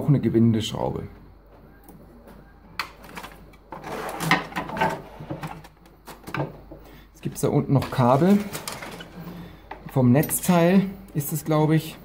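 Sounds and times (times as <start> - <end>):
plastic printer being handled: 2.7 - 11.4.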